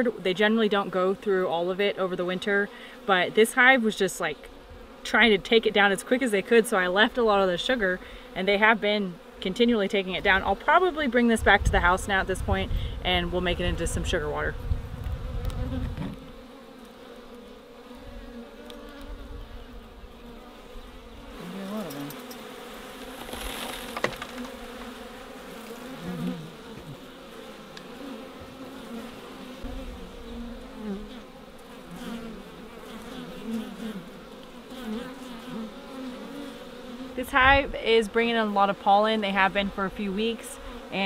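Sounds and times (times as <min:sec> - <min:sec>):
bees buzzing: 0:00.0 - 0:41.0.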